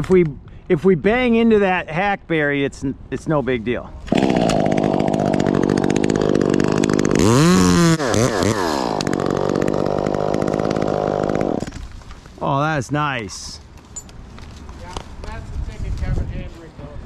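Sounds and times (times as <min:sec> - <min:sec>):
chainsaw cutting wood: 0:04.1 - 0:12.0.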